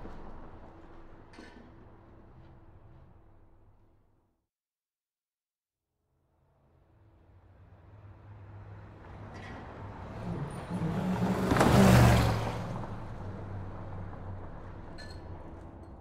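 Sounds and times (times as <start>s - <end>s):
low hum of traffic: 6.3s - 16.0s
vehicle passing close by: 7.6s - 15.8s.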